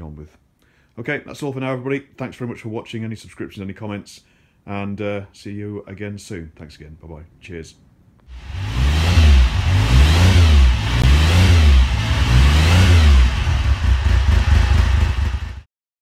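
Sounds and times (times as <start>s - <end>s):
engine revving: 8.3s - 15.7s.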